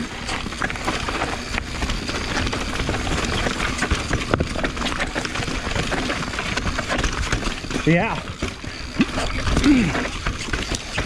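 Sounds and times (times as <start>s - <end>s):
bike rattling and knocking: 0.0s - 11.0s
bike tyres rumbling on dirt: 0.0s - 11.0s.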